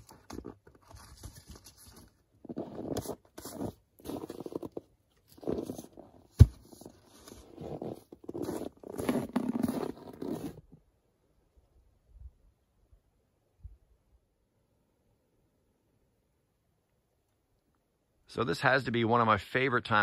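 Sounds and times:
firewood logs being handled: 0.0s - 10.6s
footsteps crunching in snow: 2.4s - 10.6s.

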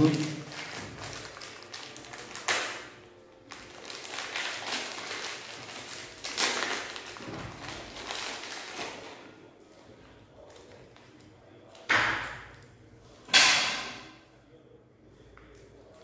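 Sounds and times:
plastic wrapper crinkling: 0.0s - 11.9s.

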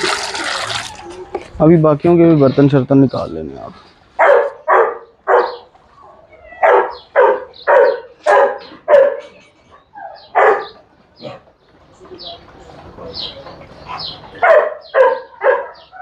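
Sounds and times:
dog barking: 4.2s - 5.7s, 6.6s - 9.4s, 10.0s - 10.8s, 13.9s - 16.0s.

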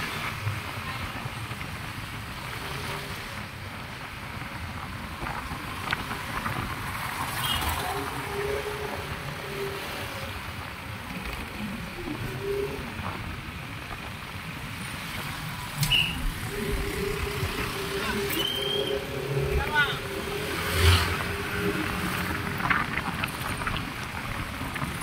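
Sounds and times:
motorcycle engine and road rumble: 0.0s - 25.0s
traffic passing: 0.0s - 25.0s
wind rush: 15.4s - 25.0s.

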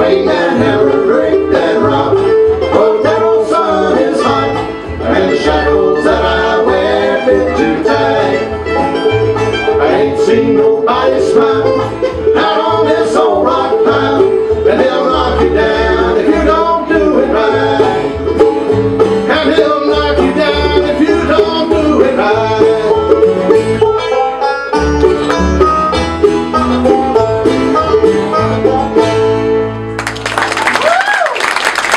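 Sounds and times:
plucked acoustic guitar: 0.0s - 30.0s
walking bass line: 0.0s - 30.0s
mandolin: 0.0s - 30.2s.

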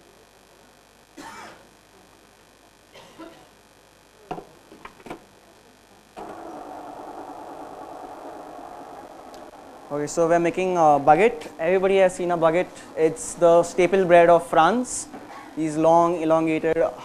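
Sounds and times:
stand mixer motor running: 6.2s - 12.8s.

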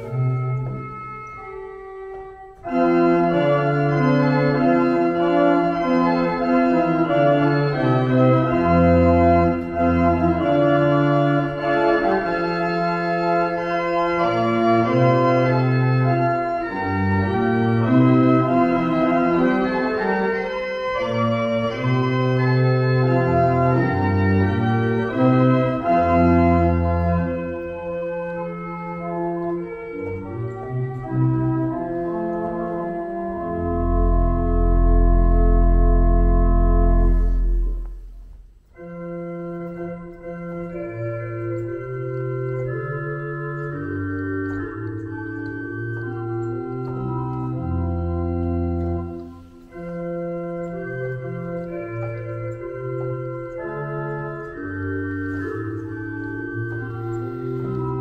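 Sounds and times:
pipe organ playing: 0.0s - 58.0s.

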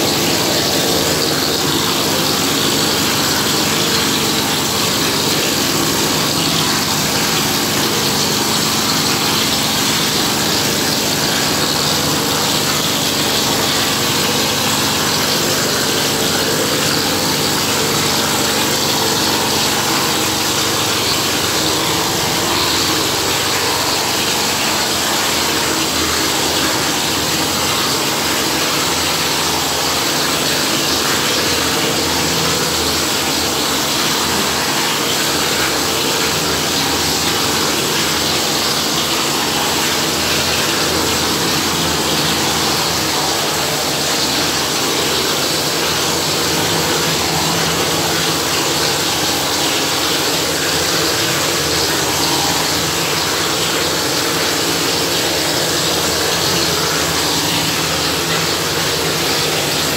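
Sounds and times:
plaster spraying machine running: 0.0s - 59.9s.

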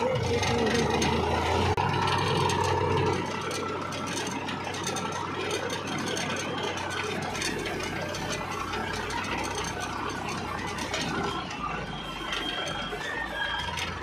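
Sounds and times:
diesel tractor engine running: 0.0s - 14.0s.

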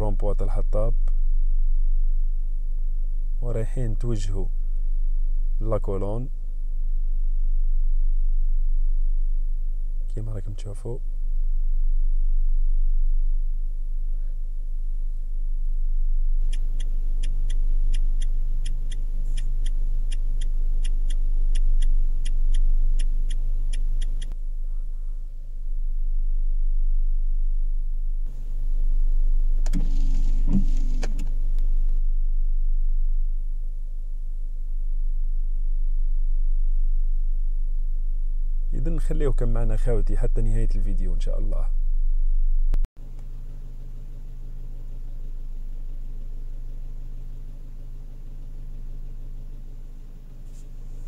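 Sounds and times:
car engine and road noise: 0.0s - 39.0s, 41.8s - 51.0s
turn signal ticking: 16.4s - 24.4s.

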